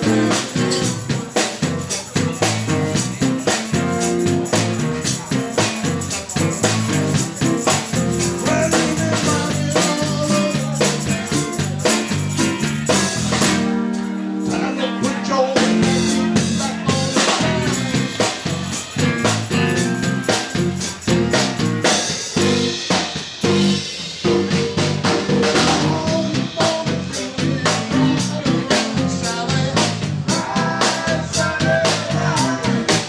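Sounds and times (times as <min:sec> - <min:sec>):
man singing: 0:00.0 - 0:13.6, 0:14.4 - 0:19.3, 0:25.2 - 0:33.0
rhythm and blues band playing: 0:00.0 - 0:33.0.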